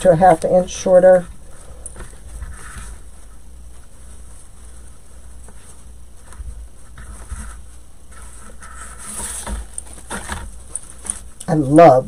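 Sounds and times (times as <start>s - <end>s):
ribbon rustling and crinkling: 0.0s - 11.5s.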